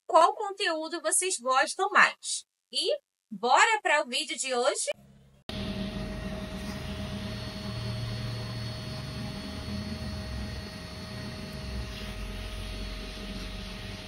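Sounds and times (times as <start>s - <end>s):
electric equipment humming: 5.5s - 14.0s
faint high whine: 5.5s - 14.0s.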